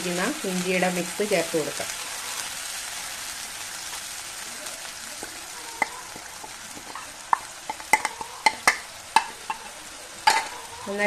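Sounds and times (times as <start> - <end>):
oil sizzling in a pan: 0.0 - 11.0
spoon clinking on plate and pan: 5.2 - 10.8.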